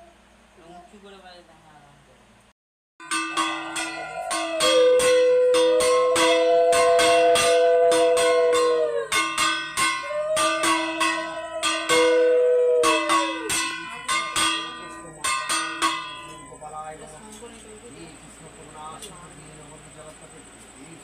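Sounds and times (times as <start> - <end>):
brass hand bell ringing: 3.0 - 16.6
long held notes dipping in pitch: 3.0 - 16.7.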